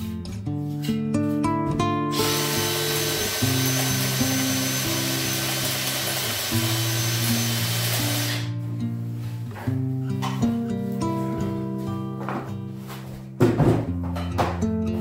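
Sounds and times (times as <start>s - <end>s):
acoustic guitar music: 0.0s - 15.0s
power tool whining: 2.1s - 8.5s.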